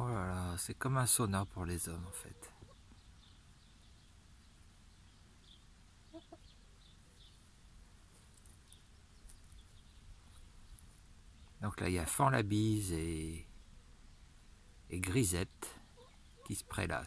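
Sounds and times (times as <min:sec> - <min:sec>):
hen clucking softly: 0:02.0 - 0:03.0, 0:06.0 - 0:06.6, 0:15.9 - 0:16.9
faint high bird chirps: 0:02.0 - 0:07.5.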